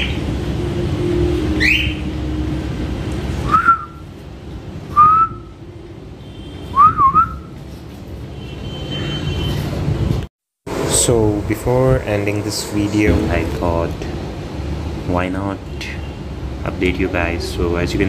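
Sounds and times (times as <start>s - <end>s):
parrot chirps and whistles: 1.6s - 2.0s
steady low hum: 10.7s - 15.1s.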